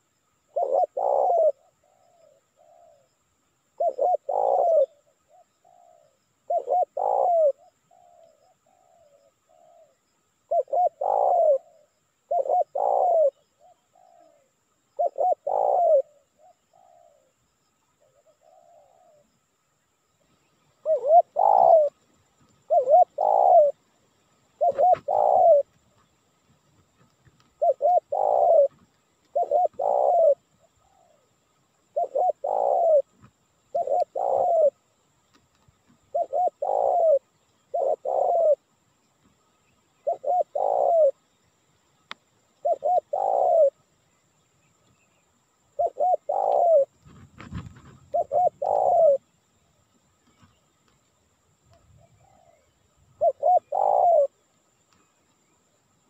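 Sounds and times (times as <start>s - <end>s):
dove cooing: 0.0s - 3.1s, 3.8s - 17.4s, 18.0s - 19.3s, 20.8s - 23.9s, 24.6s - 26.1s, 27.3s - 34.9s, 35.9s - 38.8s, 40.0s - 41.2s, 42.6s - 43.8s, 45.7s - 49.3s, 51.9s - 54.4s.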